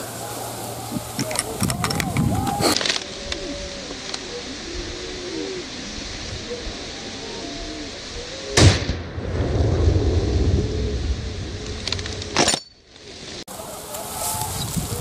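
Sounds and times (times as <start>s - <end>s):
gunshots: 8.6s - 9.6s
low rumble: 8.6s - 12.4s.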